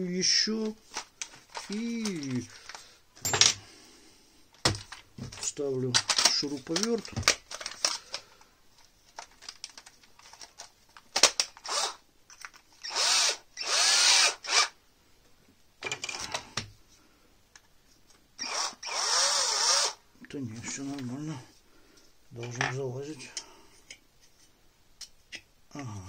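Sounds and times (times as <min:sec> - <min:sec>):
cordless drill motor: 0:11.6 - 0:12.0, 0:12.8 - 0:14.8, 0:18.4 - 0:20.0.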